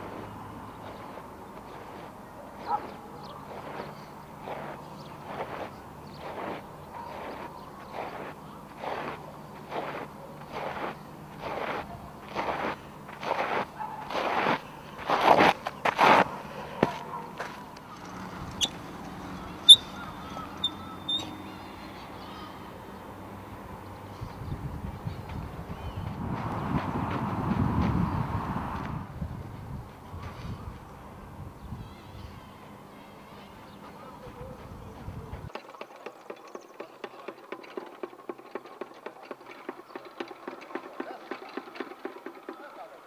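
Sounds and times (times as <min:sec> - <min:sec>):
short high chirps: 0:20.6 - 0:21.4.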